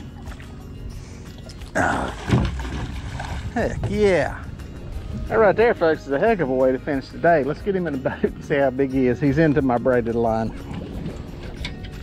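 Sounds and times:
fish thrashing and splashing: 1.4 - 3.6.

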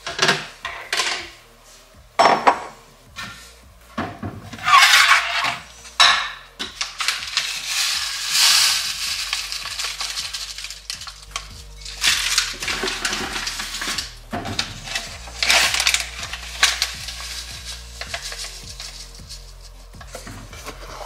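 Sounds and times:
dishes clattering: 2.2 - 3.4, 4.0 - 8.9
oats pouring into glass bowl: 7.0 - 19.4.

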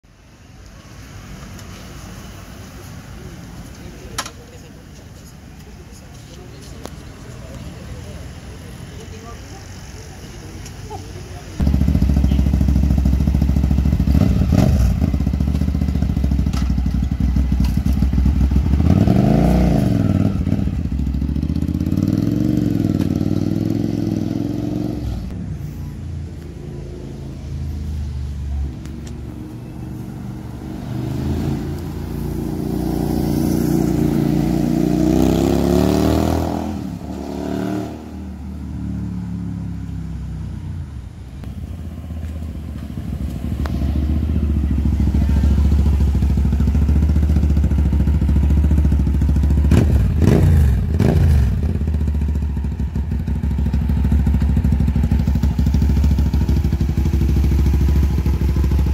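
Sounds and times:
motorcycle engine revving: 11.6 - 25.4, 29.1 - 40.4, 41.6 - 58.9.

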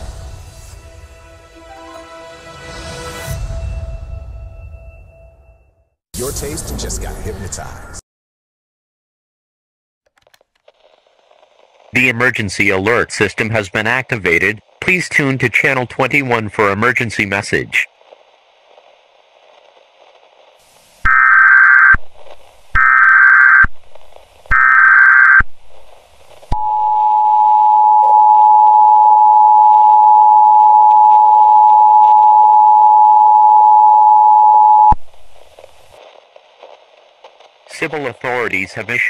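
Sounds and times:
shrill digital header bursts: 21.1 - 22.0, 22.8 - 23.7, 24.5 - 25.4.

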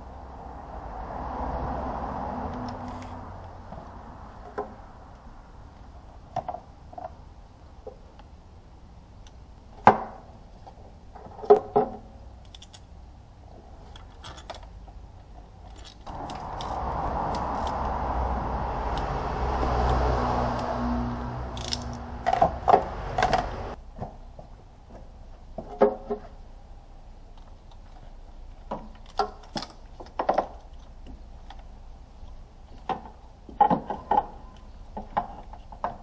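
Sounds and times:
steady rushing noise with hum: 16.1 - 23.8.

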